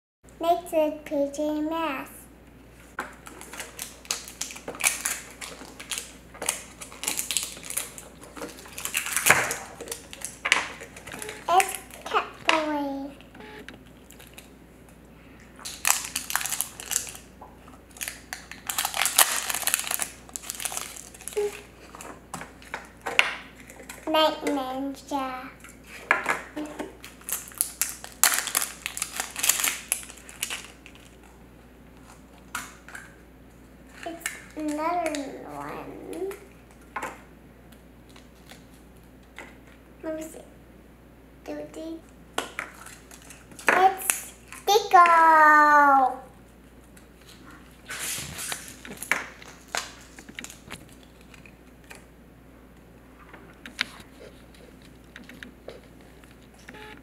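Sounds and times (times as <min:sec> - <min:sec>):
plastic crackling and clicking: 0:03.0 - 0:12.7, 0:15.6 - 0:17.3, 0:48.5 - 0:52.1
plastic rustle: 0:03.2 - 0:12.4, 0:15.6 - 0:17.3, 0:17.9 - 0:23.0, 0:25.8 - 0:31.4, 0:42.7 - 0:44.7, 0:47.2 - 0:51.6.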